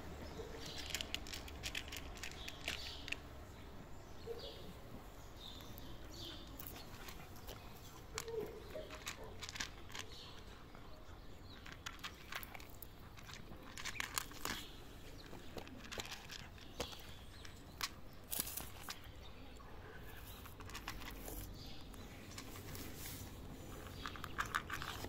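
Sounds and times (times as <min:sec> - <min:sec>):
cat crunching dry kibble: 0:00.4 - 0:03.3, 0:05.5 - 0:10.7, 0:11.4 - 0:19.2, 0:20.0 - 0:25.0.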